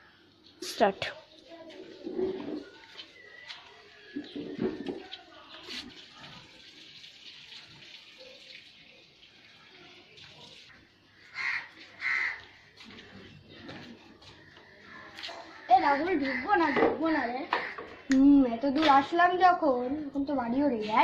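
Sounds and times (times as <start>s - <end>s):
sandals scuffing on pavement: 1.6s - 4.4s, 11.8s - 15.7s.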